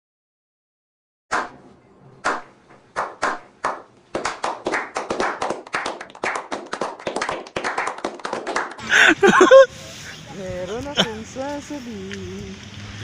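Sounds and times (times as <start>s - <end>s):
men clapping: 3.0s - 9.6s.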